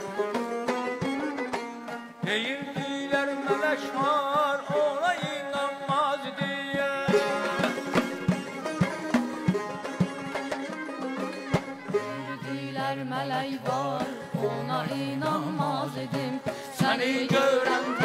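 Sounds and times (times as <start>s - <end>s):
lute playing: 0.0s - 4.9s, 7.1s - 18.0s
frame drums beating: 0.0s - 18.0s
wind instrument trilling melody: 7.2s - 13.0s.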